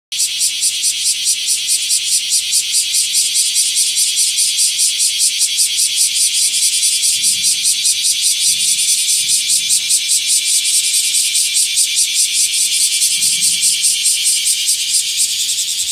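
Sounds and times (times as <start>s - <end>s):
cicadas buzzing: 0.1s - 15.9s.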